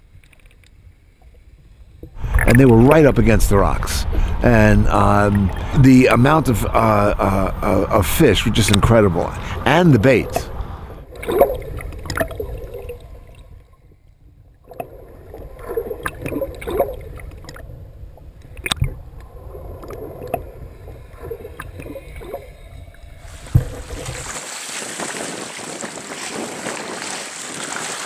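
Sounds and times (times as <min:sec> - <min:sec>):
underwater sloshing and gurgling: 0:00.0 - 0:27.9
wind: 0:00.0 - 0:28.0
small waves hissing: 0:02.2 - 0:13.7, 0:18.6 - 0:28.0.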